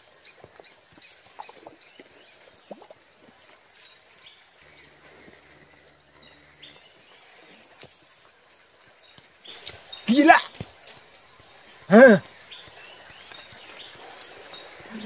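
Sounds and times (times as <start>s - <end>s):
bird chirping: 3.4s - 7.6s, 9.0s - 15.0s.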